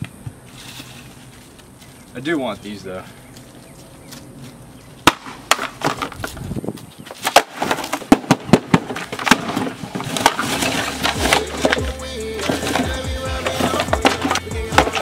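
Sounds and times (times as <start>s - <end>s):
box and packing clattering: 7.1s - 15.0s.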